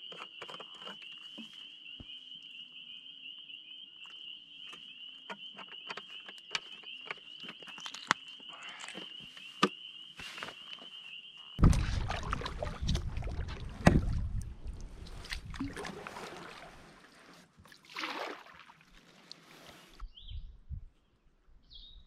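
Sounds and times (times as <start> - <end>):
wind rumble on microphone: 11.6 - 15.7, 20.0 - 21.0
water sloshing around hull: 11.6 - 20.0.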